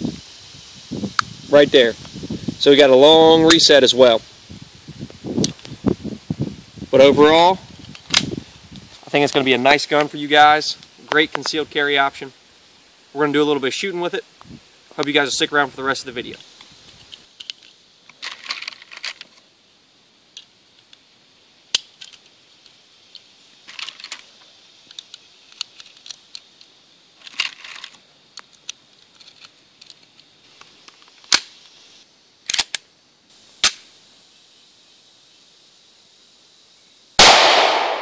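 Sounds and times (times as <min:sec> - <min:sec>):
cartridges clicking into magazine: 0:32.5 - 0:32.9, 0:33.6 - 0:33.8.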